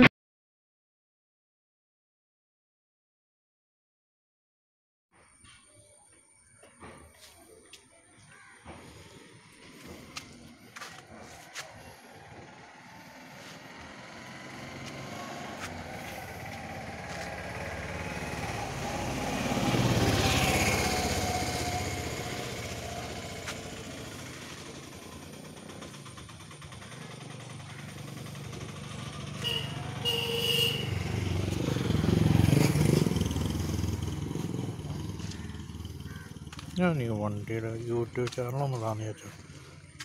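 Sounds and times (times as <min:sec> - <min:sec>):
motor vehicles passing: 0:06.8 - 0:40.0.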